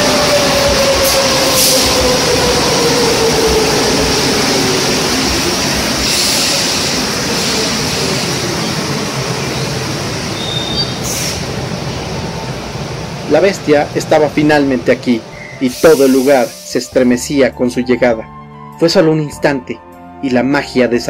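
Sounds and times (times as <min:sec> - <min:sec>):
train whine falling in pitch: 0:00.0 - 0:12.8
subway train rumble: 0:00.0 - 0:17.6.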